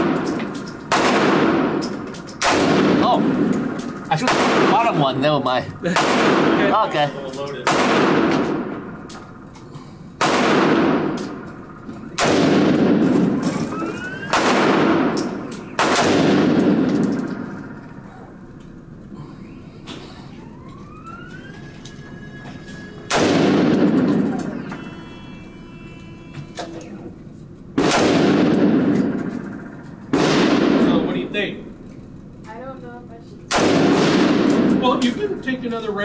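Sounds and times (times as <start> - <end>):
rifle shots echoing indoors: 0.0 - 9.4, 10.2 - 18.0, 23.1 - 24.8, 27.8 - 31.4, 33.5 - 35.5.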